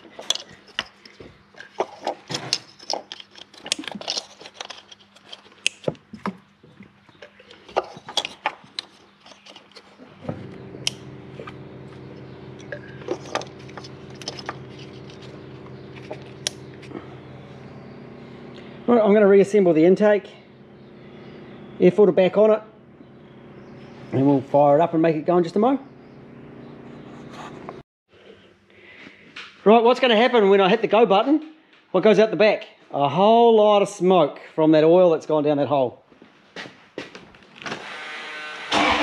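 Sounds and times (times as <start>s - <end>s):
bolts clicking: 0.0s - 6.4s, 7.2s - 17.0s
steady mechanical hum: 0.0s - 30.4s.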